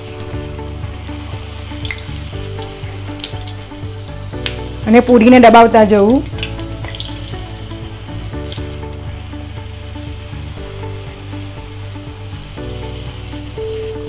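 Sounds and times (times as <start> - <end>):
oil sizzling: 0.0 - 14.0
soft background music: 0.0 - 14.0.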